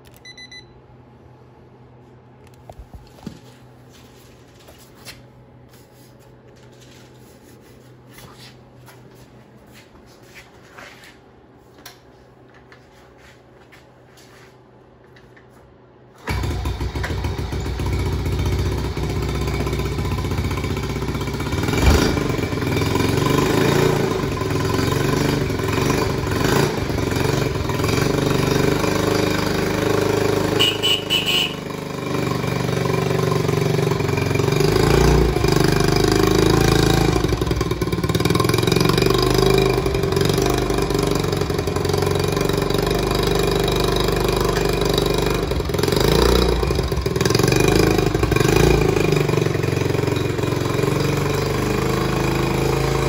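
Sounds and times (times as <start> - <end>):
motorcycle engine starting and running: 16.1 - 53.0.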